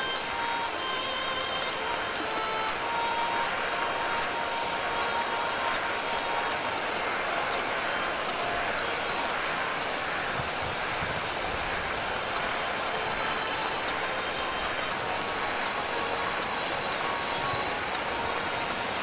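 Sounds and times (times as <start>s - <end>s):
floodwater rushing down street: 0.0s - 19.0s
heavy rain hissing: 0.0s - 19.0s.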